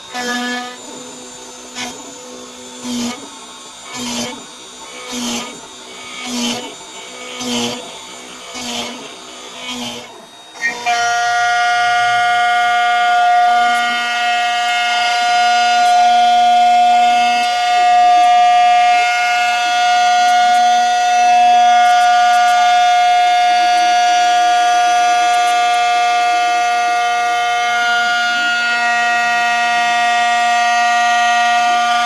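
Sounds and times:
milling machine spindle whining: 0.0 - 32.0.

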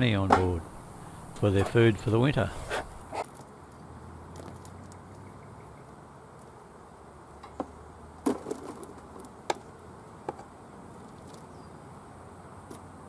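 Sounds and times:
hum of bees: 0.0 - 13.0
wooden knocks on a beehive box: 0.2 - 0.6.

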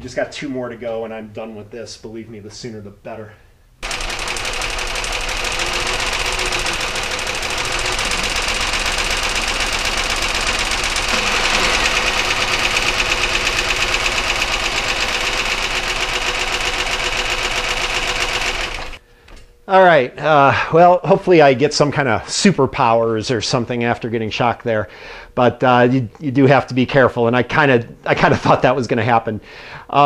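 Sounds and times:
car engine idling: 3.8 - 19.0
engine ticking knock: 3.8 - 19.0.

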